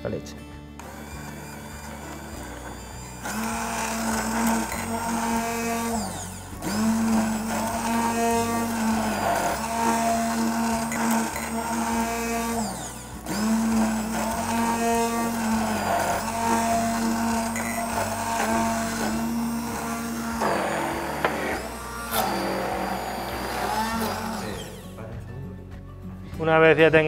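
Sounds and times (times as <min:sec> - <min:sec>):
immersion blender whining: 0:00.8 - 0:25.0.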